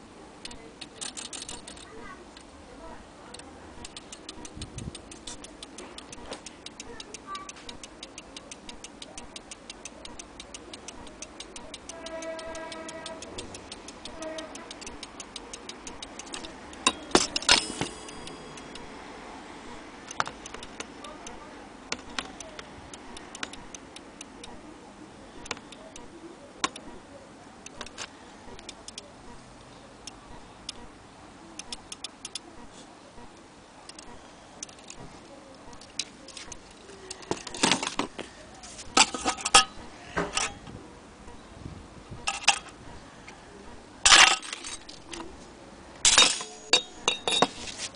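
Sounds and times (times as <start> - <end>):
clock movement ticking: 0.0 - 31.0, 31.6 - 40.6
metallic clinks: 0.8 - 2.0, 10.4 - 19.0, 46.0 - 47.6.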